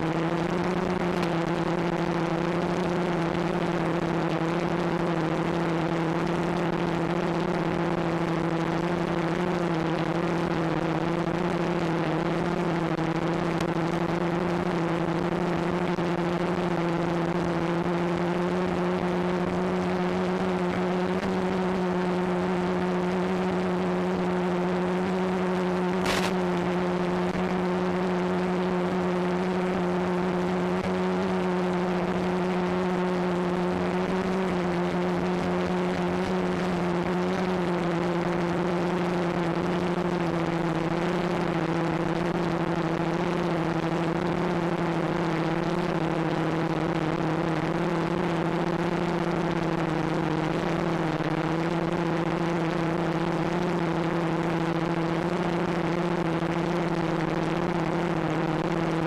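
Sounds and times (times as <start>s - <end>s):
quadcopter motors humming: 17.5s - 47.0s
brief click: 26.0s - 26.4s.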